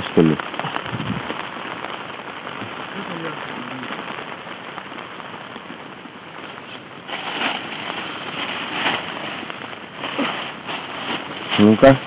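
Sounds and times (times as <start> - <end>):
light rain hiss: 0.0 - 12.0
plastic bag rustling: 6.5 - 12.0.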